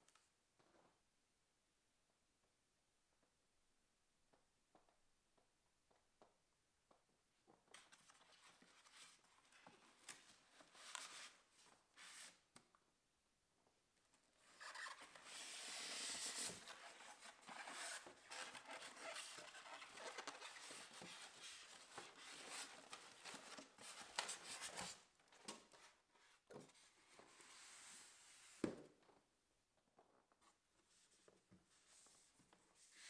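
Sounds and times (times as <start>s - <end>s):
plastic wrapping rustling: 14.7s - 25.0s.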